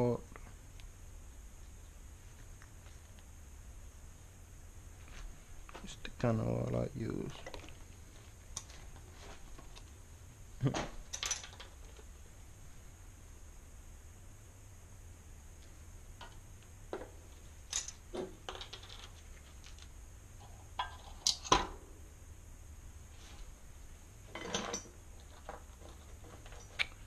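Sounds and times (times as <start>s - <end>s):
small metal parts clinking: 11.1s - 12.1s, 17.7s - 19.9s, 24.3s - 26.9s.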